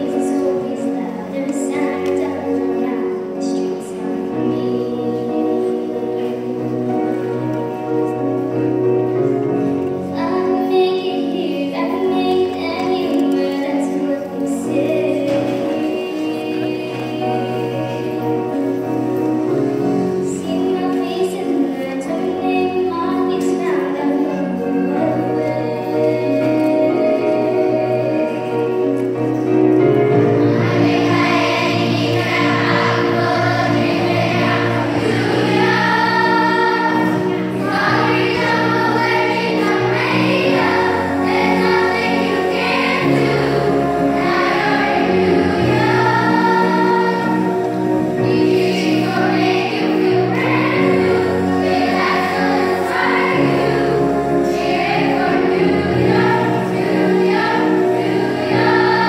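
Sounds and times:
children's choir singing: 0.0 - 59.0
instrumental accompaniment with bass: 11.8 - 59.0.

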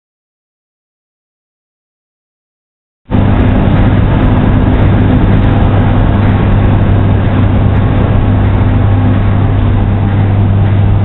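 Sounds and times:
machinery drone with low hum: 3.1 - 11.0.

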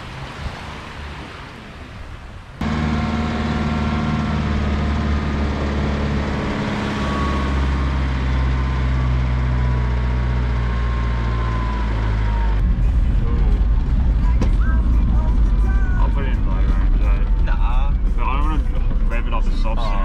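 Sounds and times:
engine running steadily: 0.0 - 20.0.

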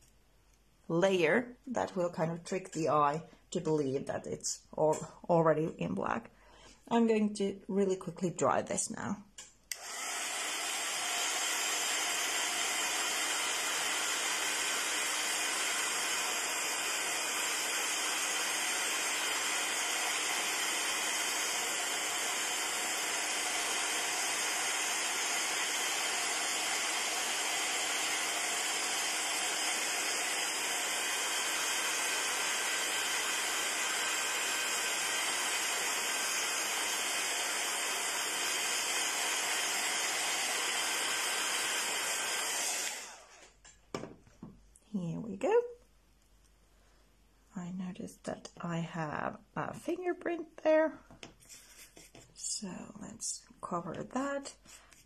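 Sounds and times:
heat gun blowing air: 9.7 - 43.6, 51.3 - 52.2.

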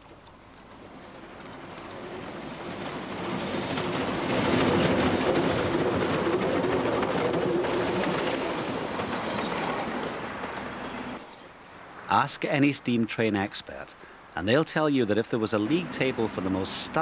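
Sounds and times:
steam train rattling over rails: 0.0 - 11.3, 14.8 - 17.0.

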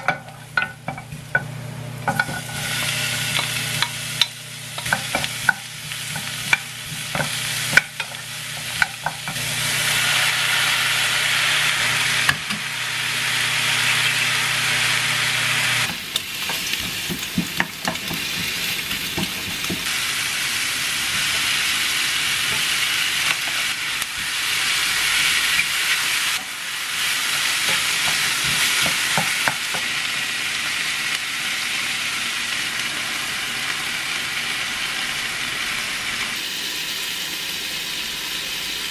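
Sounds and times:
vegetables sizzling in a frying pan: 0.0 - 38.9
wooden spoon tapping and scraping pan: 3.4 - 9.4, 15.9 - 19.9, 27.7 - 29.9.

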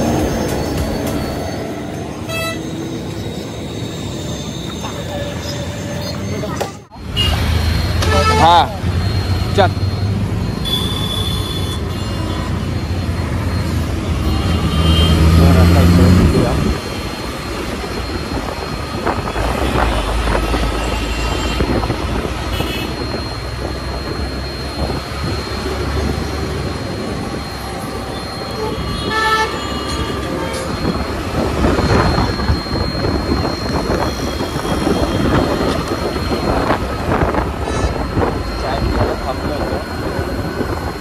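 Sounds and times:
road and wind noise: 0.0 - 41.0
vehicle horns honking: 2.2 - 2.8, 4.7 - 8.8, 10.6 - 12.6, 14.2 - 16.4, 19.4 - 23.2, 28.2 - 30.7, 37.5 - 39.0.

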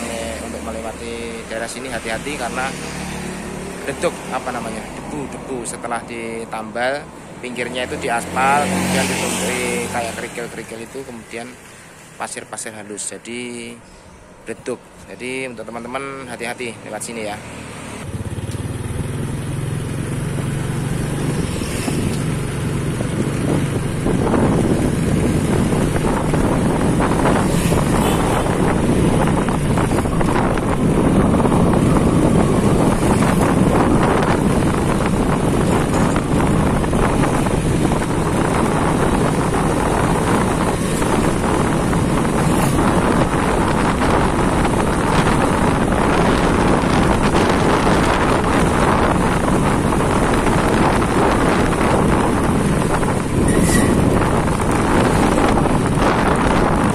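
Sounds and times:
wind rushing over microphone: 0.0 - 17.4, 18.0 - 56.9
motorcycle engine running: 18.1 - 56.9.

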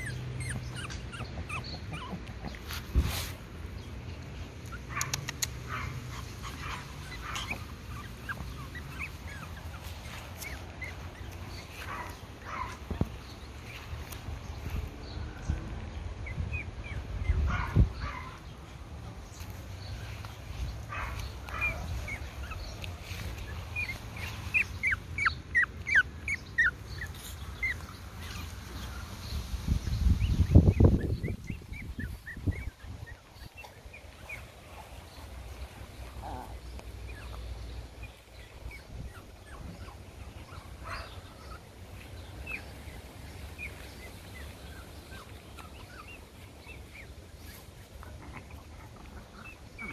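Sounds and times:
puppy squeaking: 0.0 - 2.6, 6.1 - 11.6, 21.5 - 28.5
puppies yipping and whimpering: 0.0 - 3.0, 4.7 - 14.2, 16.2 - 18.4, 19.3 - 29.2, 29.8 - 49.9
sharp clicks: 5.0 - 5.7.

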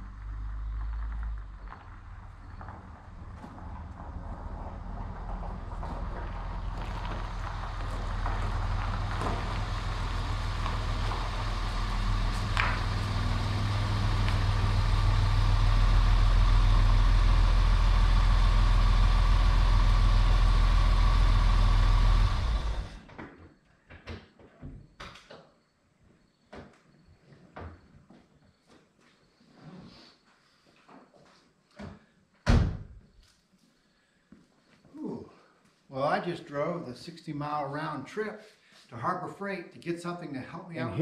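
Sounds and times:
car engine running: 0.0 - 23.0.

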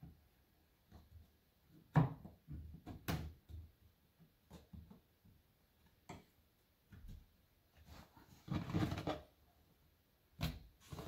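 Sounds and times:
tile scraping: 7.8 - 9.4.

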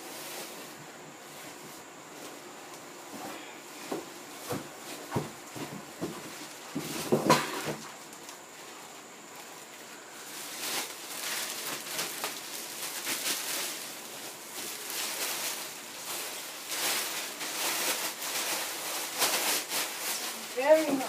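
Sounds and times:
plastic bag crinkling: 9.4 - 21.0.

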